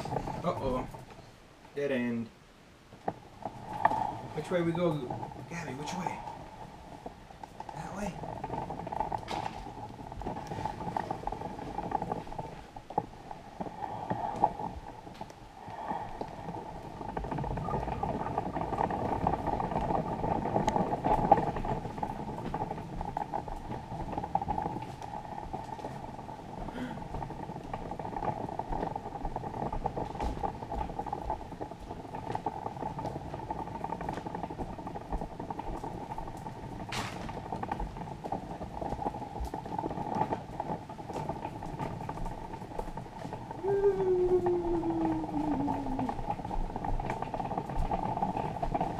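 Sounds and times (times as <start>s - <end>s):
stroller wheels rolling on wood: 0.0s - 48.9s.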